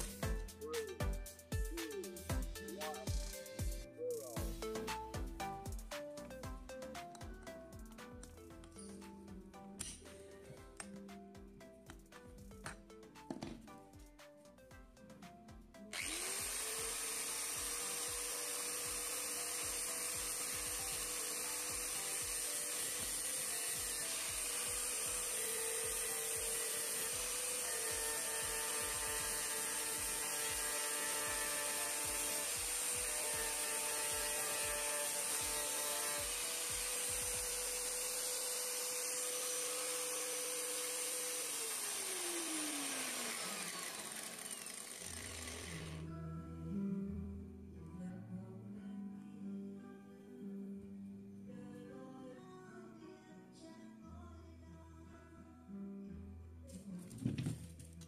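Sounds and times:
angle grinder running: 15.9 - 46.1
grinding disc on steel wrench: 16.0 - 46.0.

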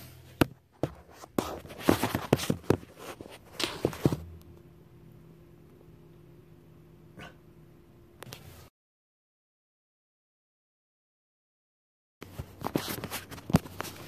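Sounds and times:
faint low hum: 0.0 - 8.7.

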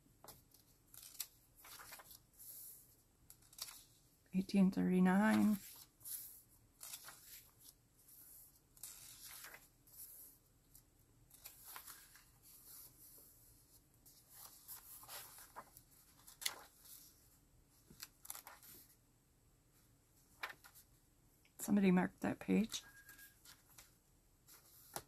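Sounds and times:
paper pages turning: 0.2 - 4.0, 5.2 - 7.8, 8.4 - 13.2, 14.1 - 17.2, 17.8 - 18.9, 20.4 - 20.9, 24.5 - 25.0.

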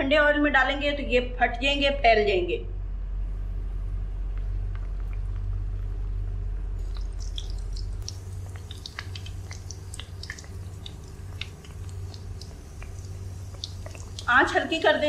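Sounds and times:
steady low hum: 0.0 - 15.0
oil sizzling with pops: 6.8 - 15.0.

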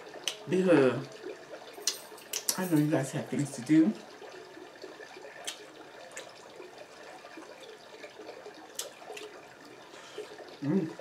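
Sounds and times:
wet mouth smacks and clicks: 1.8 - 2.6, 5.4 - 5.6, 8.8 - 9.3.

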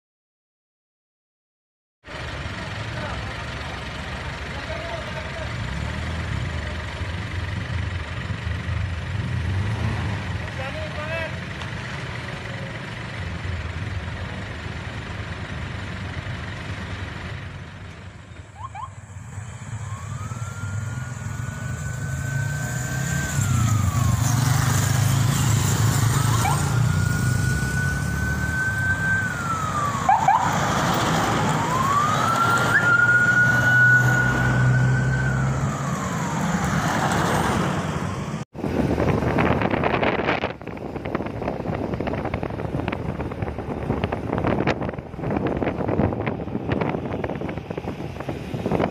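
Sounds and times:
vehicle engines rumbling: 2.0 - 48.9
emergency siren wailing: 18.4 - 38.4.

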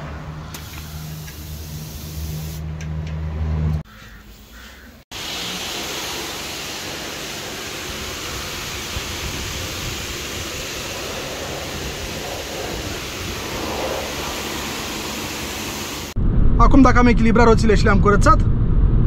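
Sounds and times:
pressure washer water hiss: 0.5 - 2.6, 4.4 - 16.2.

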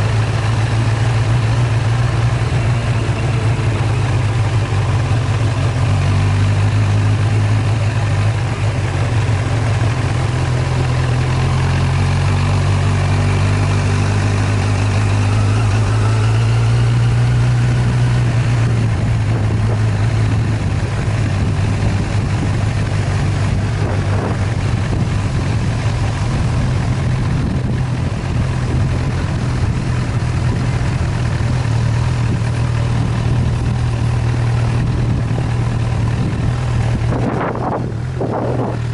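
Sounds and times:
vehicle engine droning: 0.0 - 38.9.

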